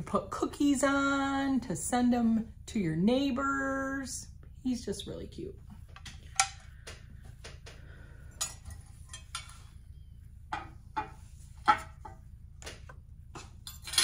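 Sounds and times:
faint low hum: 0.0 - 14.0.

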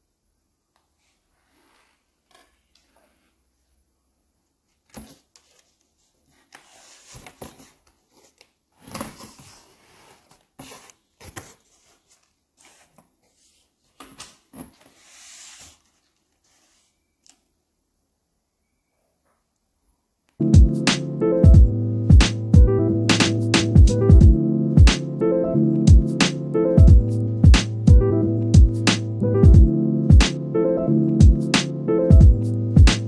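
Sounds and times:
cardboard box rustling: 6.3 - 16.8.

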